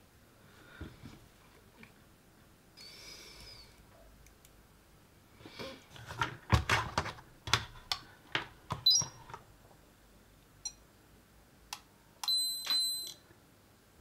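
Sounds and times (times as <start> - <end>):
test clips clicking and knocking: 6.2 - 9.4
meter electronic chirp: 12.2 - 13.2.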